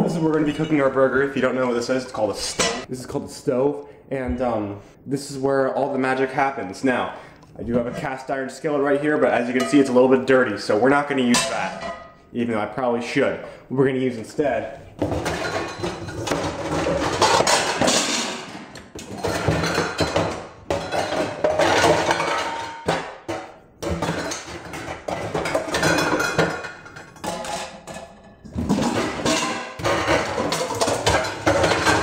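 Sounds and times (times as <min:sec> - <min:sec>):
metal pots and pans clattering: 0:00.0 - 0:02.9, 0:09.4 - 0:10.2, 0:11.2 - 0:12.2, 0:15.0 - 0:32.0.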